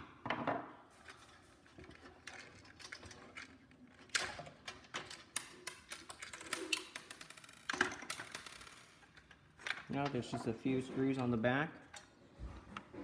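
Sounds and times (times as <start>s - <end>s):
plastic and metal parts clicking: 1.1s - 10.5s.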